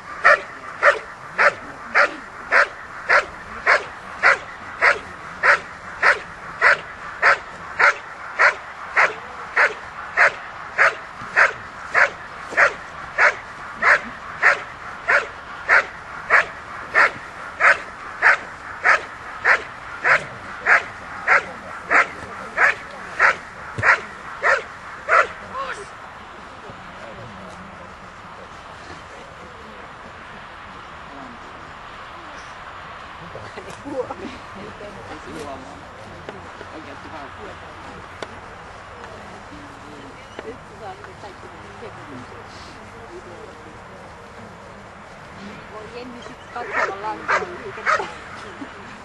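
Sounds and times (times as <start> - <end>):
dog barking: 0.2 - 25.4, 46.7 - 48.1.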